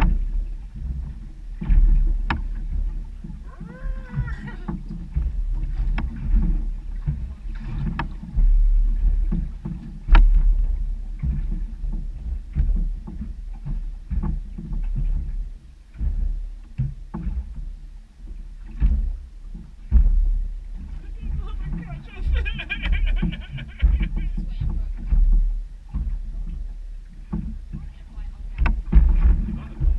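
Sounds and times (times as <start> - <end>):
water slapping against hull: 0.0 - 29.9
wind rumble on microphone: 0.0 - 29.9
sharp knocks: 28.6 - 29.9.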